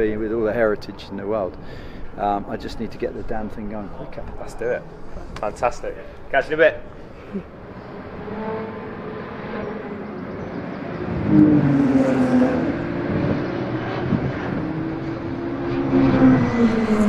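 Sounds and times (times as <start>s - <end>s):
racing car engines passing: 2.4s - 17.0s.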